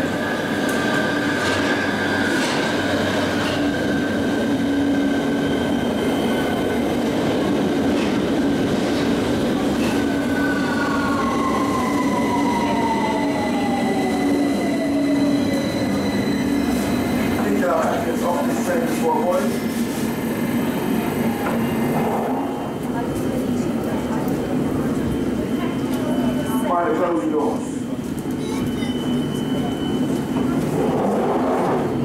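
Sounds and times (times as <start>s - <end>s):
train wheels rumbling on rail: 0.0s - 26.5s, 27.6s - 32.0s
train brakes whining: 9.7s - 20.2s, 27.6s - 32.0s.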